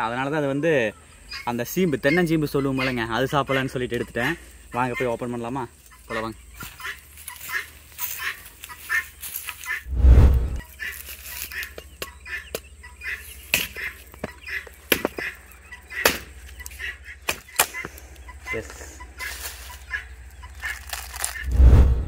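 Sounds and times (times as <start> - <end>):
billhook chopping coconut husk: 13.5 - 13.8, 14.9 - 15.2, 16.0 - 16.4.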